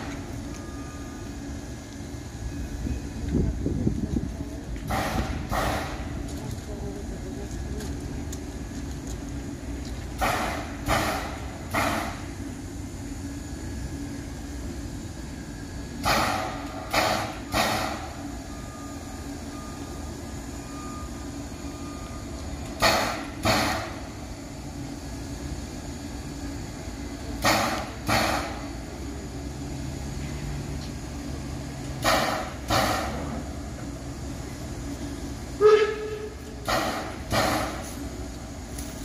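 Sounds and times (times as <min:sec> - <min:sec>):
steam locomotive hissing puffs: 0:04.8 - 0:06.3, 0:10.0 - 0:30.8, 0:31.4 - 0:38.7.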